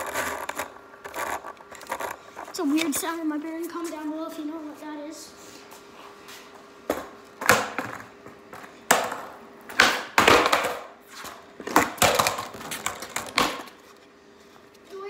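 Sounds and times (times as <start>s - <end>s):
skateboard clacking on concrete: 8.9s - 10.9s, 11.6s - 13.8s.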